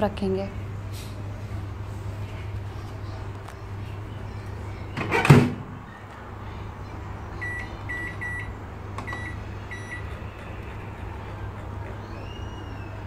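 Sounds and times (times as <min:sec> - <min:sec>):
microwave door shutting: 0:04.9 - 0:05.6
control panel beeping: 0:07.4 - 0:10.0.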